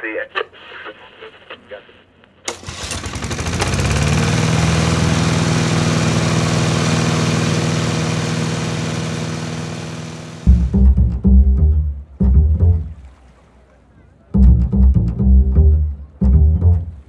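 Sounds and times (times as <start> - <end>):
boat engine running: 2.5 - 13.3, 14.3 - 17.0.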